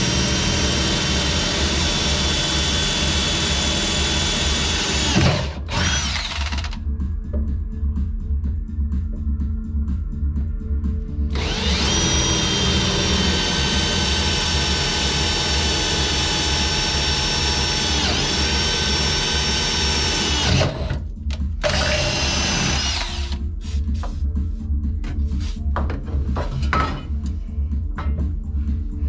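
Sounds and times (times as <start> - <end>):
cordless drill boring metal: 0.0 - 6.8, 11.3 - 21.0, 21.6 - 23.4
background music beat: 5.7 - 15.2, 19.6 - 29.0.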